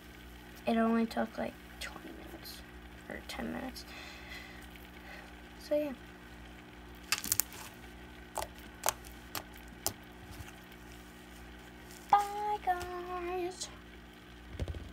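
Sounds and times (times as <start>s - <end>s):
slime clicking and popping: 7.1s - 7.6s, 8.3s - 10.0s
girl singing: 12.1s - 13.8s.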